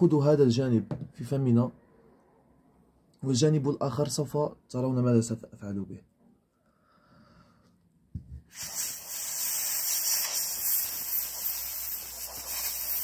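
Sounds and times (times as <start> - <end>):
air blowing through small tube: 8.4 - 13.0.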